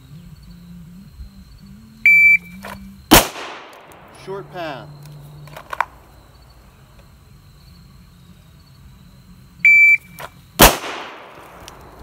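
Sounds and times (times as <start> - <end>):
pistol shot: 3.1 - 4.3, 10.6 - 12.0.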